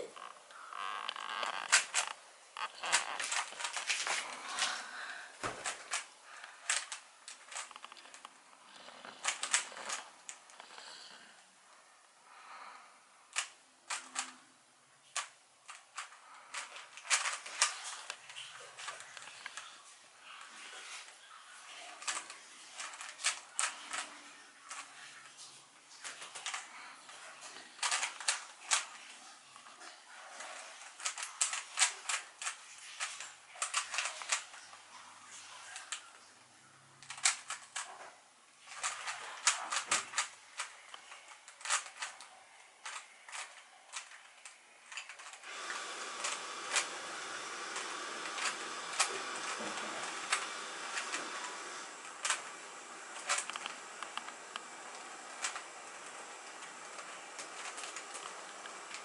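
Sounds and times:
steady hiss: 0.0 - 59.0
puzzle cube clicking: 1.1 - 4.3, 6.7 - 8.4, 9.0 - 11.0, 13.4 - 14.4, 15.2 - 18.2, 22.0 - 24.9, 27.8 - 28.9, 30.9 - 34.6, 37.1 - 37.9, 38.7 - 52.5, 53.1 - 59.0.

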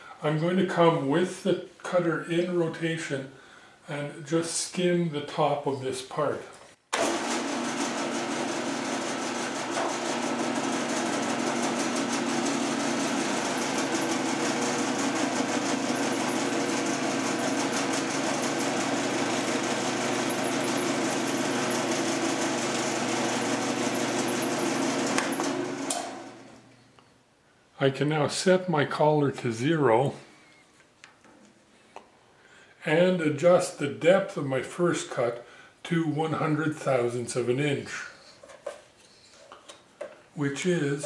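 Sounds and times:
milling machine humming: 7.0 - 26.6.

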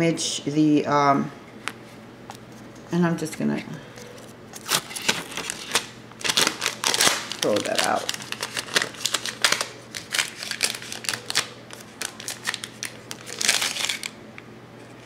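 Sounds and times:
sticky paper sheet crumpling: 4.6 - 14.2.

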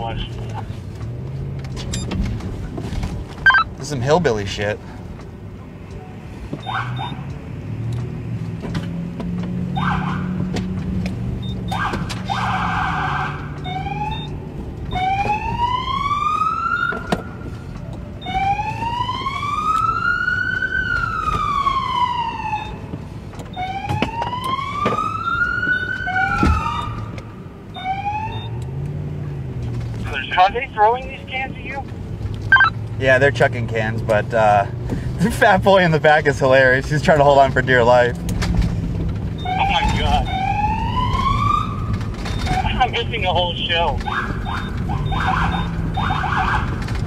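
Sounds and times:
police siren wailing: 3.4 - 3.7, 6.6 - 7.4, 9.7 - 10.5, 11.5 - 28.6, 30.1 - 31.8, 32.5 - 32.8, 39.3 - 47.0
siren blips: 3.4 - 3.7, 6.6 - 7.3, 11.4 - 17.6, 18.2 - 22.9, 23.5 - 28.6, 32.5 - 32.8, 39.3 - 46.8
vehicle engine running: 28.4 - 47.0.

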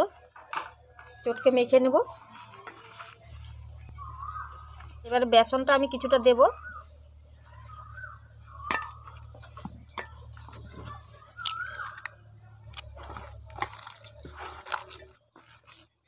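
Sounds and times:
low steady hum: 0.0 - 15.9
batter squelching and crunching: 2.0 - 5.6, 6.7 - 16.0.

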